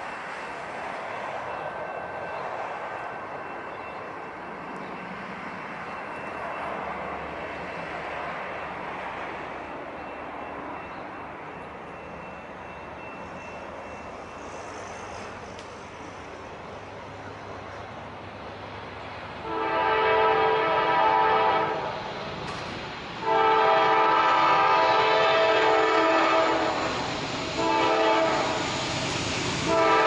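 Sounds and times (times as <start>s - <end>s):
distant engine drone: 8.6s - 30.0s.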